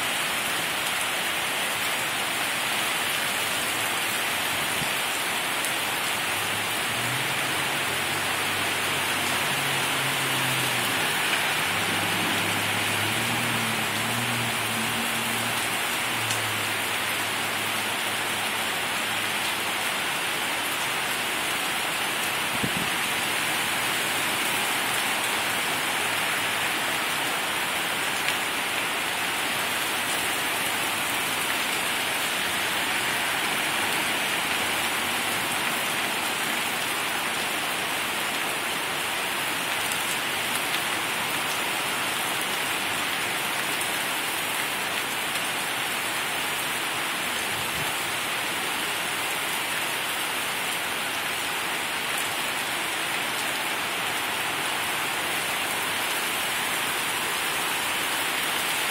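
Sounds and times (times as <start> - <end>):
heavy rain splashing on street: 0.0 - 58.9.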